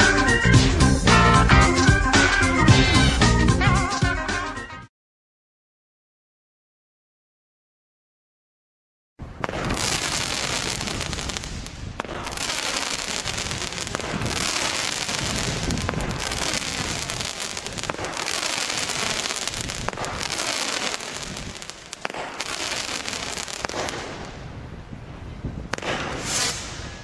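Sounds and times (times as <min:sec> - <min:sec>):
firework hissing and crackling: 0:09.4 - 0:24.4, 0:25.7 - 0:27.0
firework sharp cracks: 0:09.4 - 0:24.6, 0:25.7 - 0:27.0.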